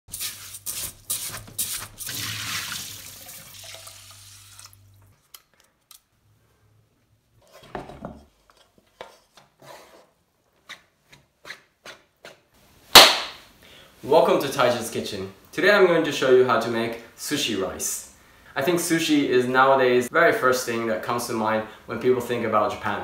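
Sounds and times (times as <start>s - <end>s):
rice washed in water: 0.1s - 4.8s.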